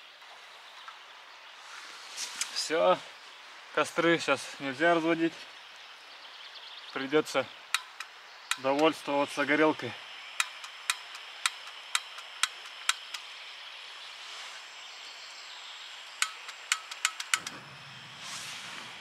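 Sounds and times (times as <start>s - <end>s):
stove clicking: 7.7s - 9.0s, 10.4s - 13.3s, 16.2s - 17.7s.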